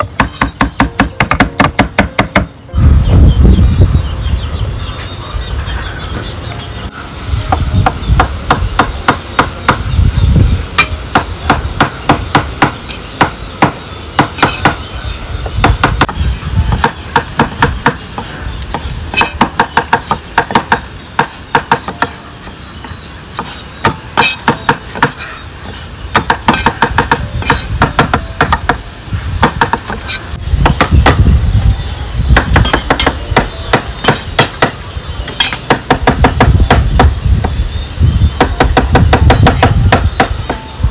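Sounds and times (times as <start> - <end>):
knife chopping food: 26.2 - 28.7.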